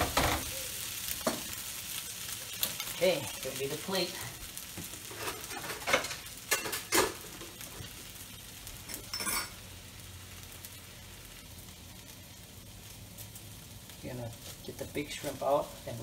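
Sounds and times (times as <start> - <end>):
rice sizzling in a wok: 0.0 - 16.0
dishes and utensils clinking: 5.1 - 7.5, 8.8 - 9.6.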